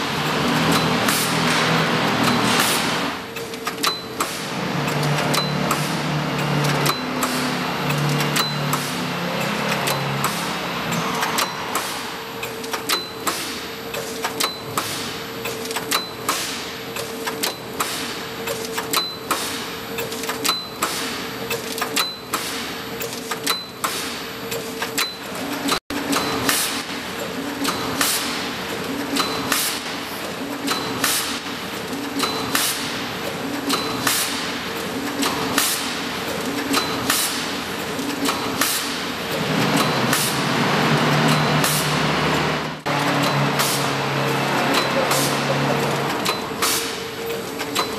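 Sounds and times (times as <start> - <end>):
machine humming: 0.0 - 3.6, 4.4 - 14.2, 31.4 - 47.9.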